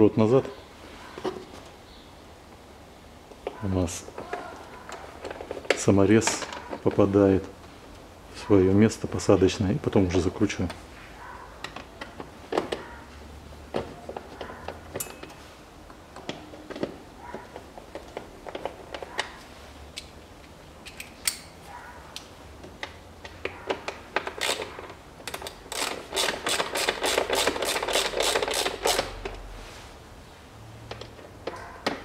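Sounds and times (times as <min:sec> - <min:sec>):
ratchet clicks: 0:24.2 - 0:29.4.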